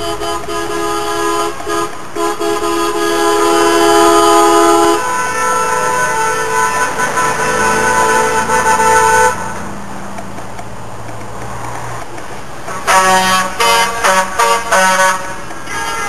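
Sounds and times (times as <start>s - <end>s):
short truck horn toots: 0.0s - 9.5s, 12.8s - 16.0s
truck horn: 0.0s - 9.6s, 12.7s - 16.0s
truck engines passing: 0.0s - 16.0s.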